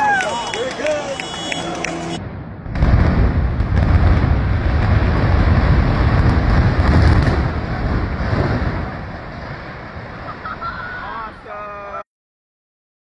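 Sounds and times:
building collapsing rumble: 1.4s - 11.5s.

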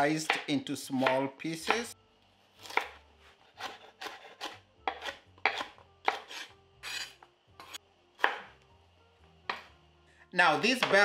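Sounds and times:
knife chopping on wooden board: 0.0s - 2.0s, 2.6s - 8.6s, 9.4s - 9.8s, 10.5s - 11.0s.

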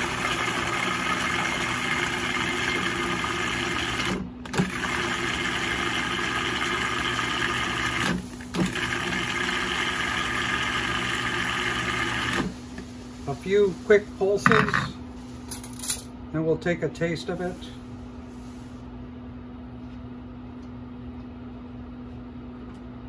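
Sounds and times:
food processor motor hum: 0.0s - 12.6s.

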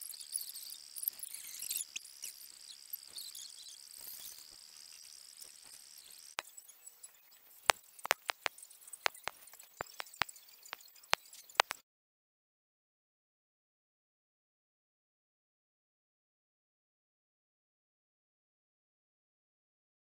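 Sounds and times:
night insects chirping: 0.0s - 11.7s
sharp clicks: 7.6s - 11.8s.

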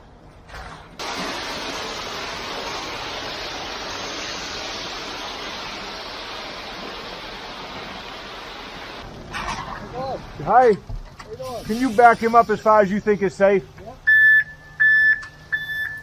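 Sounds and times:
wet concrete pouring from chute: 1.0s - 10.4s.

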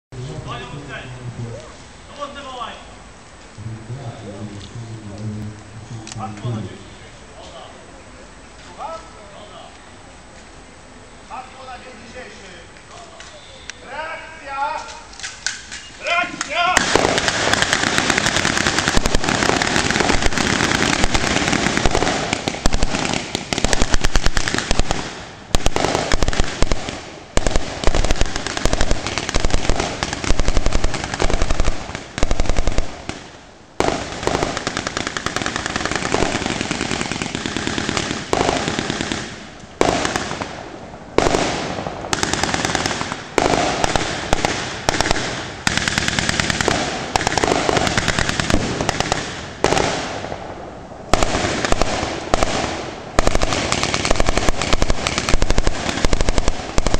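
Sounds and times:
rifle shots: 16.6s - 56.9s
machine-gun bursts: 16.8s - 32.9s, 34.0s - 40.3s, 42.1s - 49.9s, 51.2s - 56.9s.

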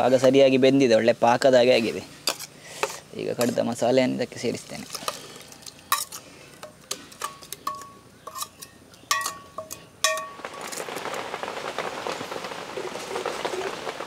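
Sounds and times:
curry bubbling: 3.4s - 5.9s
steel spoon scraping metal pots: 5.9s - 10.3s.

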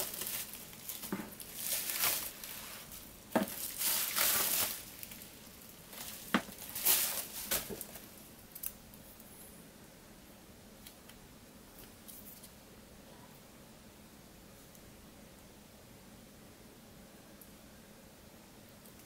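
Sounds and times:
rustling: 0.0s - 8.2s.

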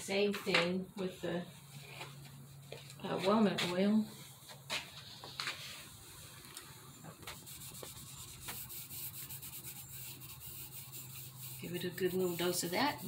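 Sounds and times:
rag rubbing wood: 7.2s - 13.0s.

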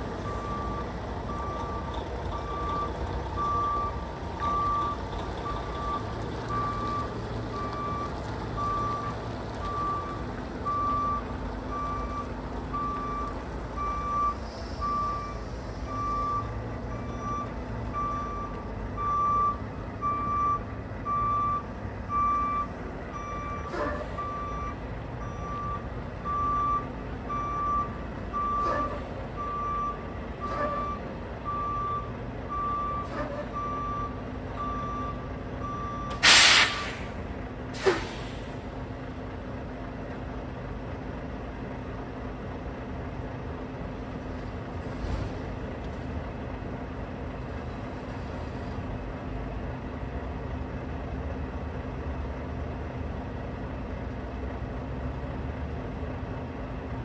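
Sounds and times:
diesel engine running: 0.0s - 57.0s
truck reverse alarm beeping: 0.2s - 37.1s.

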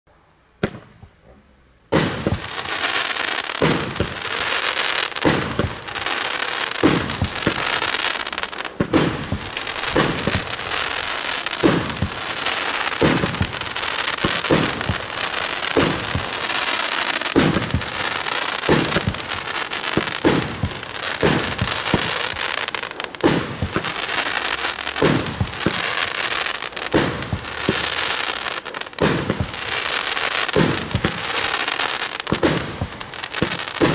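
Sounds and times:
fireworks launch thumps: 0.6s - 1.2s, 1.9s - 2.6s, 3.6s - 4.2s, 6.8s - 7.9s, 8.7s - 16.5s, 17.1s - 19.3s, 19.9s - 24.0s, 25.0s - 25.9s, 30.6s - 31.4s, 32.2s - 33.9s
hiss of burning fireworks: 1.9s - 33.9s.

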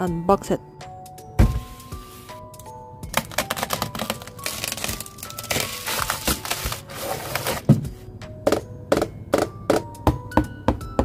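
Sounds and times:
background music: 0.0s - 11.0s
bubble wrap crinkling: 3.1s - 7.7s.

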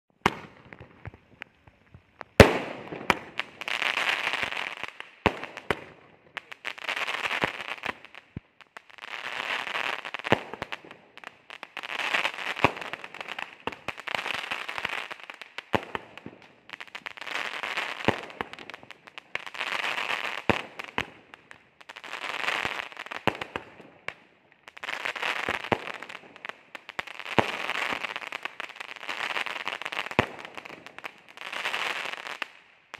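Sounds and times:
dense firework crackling: 0.1s - 32.9s
firework shot pops: 0.2s - 3.6s
firework launch crack: 0.2s - 8.4s.

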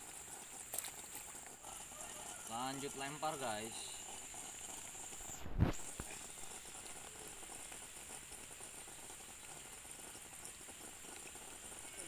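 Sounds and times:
steady high hiss: 2.4s - 8.3s.

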